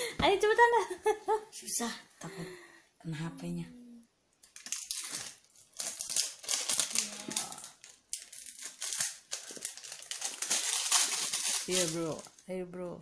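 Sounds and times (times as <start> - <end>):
plastic wrapping crinkling: 4.5 - 12.6.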